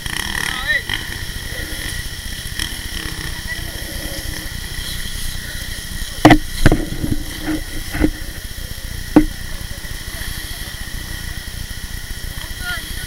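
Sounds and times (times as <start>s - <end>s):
sharp knocks: 6.2s - 8.1s, 9.1s - 9.4s.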